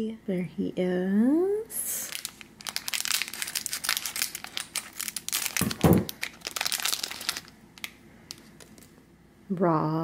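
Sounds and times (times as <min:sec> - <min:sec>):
plastic packaging crinkling and tearing: 0:02.0 - 0:08.9.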